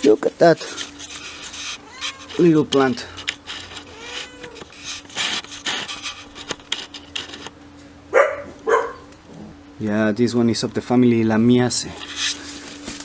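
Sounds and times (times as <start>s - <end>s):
plants rustling and brushing: 0.0s - 7.5s, 12.0s - 13.0s.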